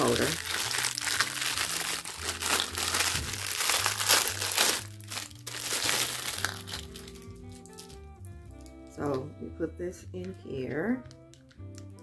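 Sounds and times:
plastic bag crinkling: 0.0 - 8.8
soft background music: 0.0 - 12.0.

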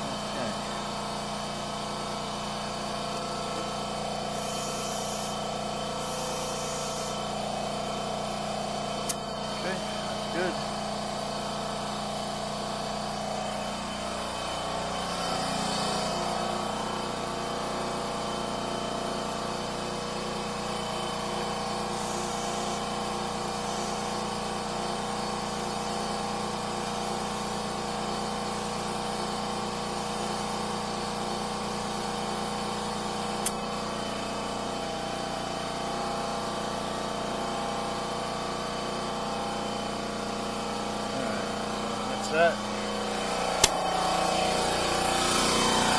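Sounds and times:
air compressor humming: 0.0 - 45.9
sharp click: 9.0 - 9.2, 33.4 - 33.6, 43.6 - 43.8.

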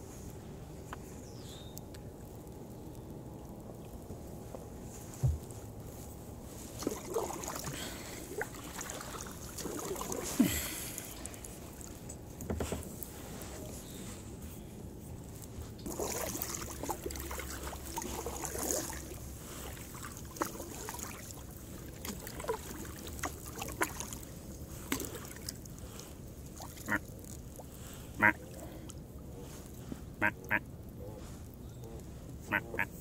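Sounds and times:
paddle splashing in water: 6.6 - 12.0, 15.8 - 28.9
goose honking: 28.2 - 28.4, 30.2 - 30.6, 32.5 - 32.9.

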